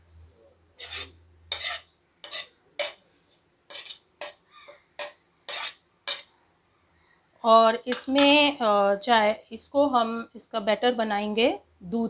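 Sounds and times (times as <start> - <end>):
spoon scraping a ceramic plate: 0.8 - 3.0, 3.7 - 4.4, 5.0 - 6.3.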